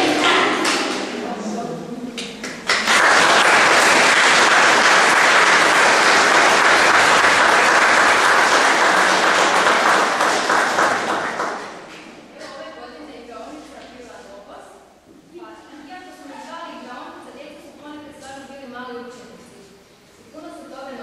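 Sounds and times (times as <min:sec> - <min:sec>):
audience applauding: 0:02.4 - 0:11.9.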